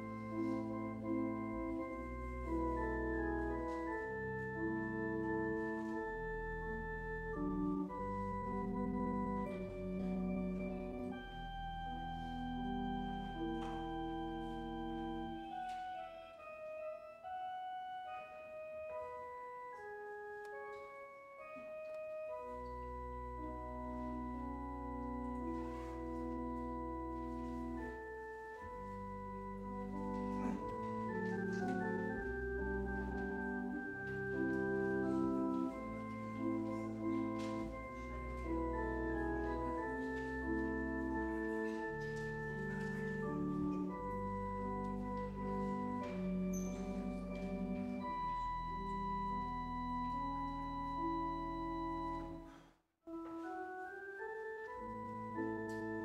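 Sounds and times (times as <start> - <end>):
church organ chords: 0.0 - 56.0.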